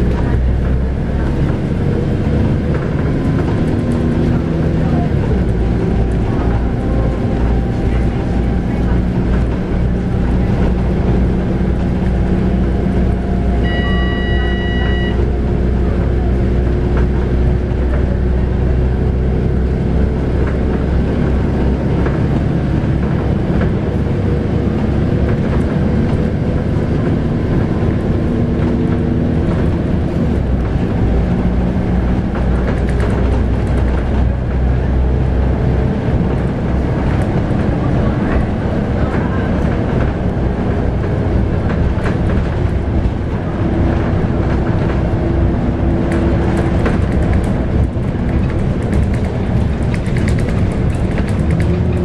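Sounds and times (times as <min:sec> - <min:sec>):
bus diesel engine running: 0:00.0 - 0:52.0
short electronic tone: 0:13.6 - 0:15.4.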